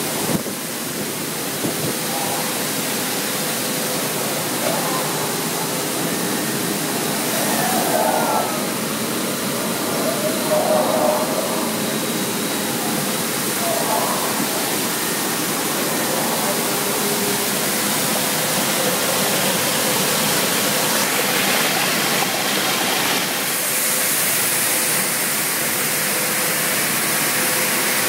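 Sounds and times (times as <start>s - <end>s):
steady hum: 0.0s - 27.0s
rushing water: 0.0s - 28.0s
machinery motors: 1.0s - 23.4s.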